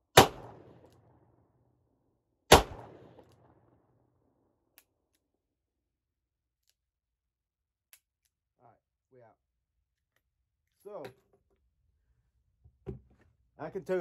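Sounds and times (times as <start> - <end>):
revolver gunshot echoing: 0.1 - 1.2, 2.5 - 3.8.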